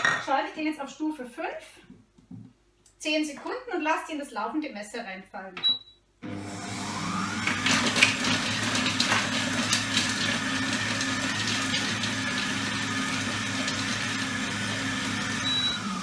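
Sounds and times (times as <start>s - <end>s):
food processor whining: 6.2s - 16.0s.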